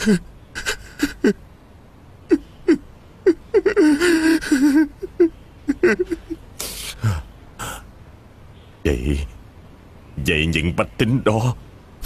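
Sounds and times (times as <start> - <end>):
man sobbing: 0.0 - 1.4, 2.3 - 7.8
sharp gasping breaths: 6.6 - 7.8.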